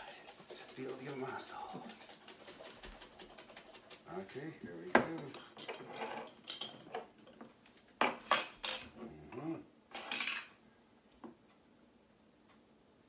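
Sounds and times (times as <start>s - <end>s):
glassware clinking on countertop: 8.0s - 10.5s.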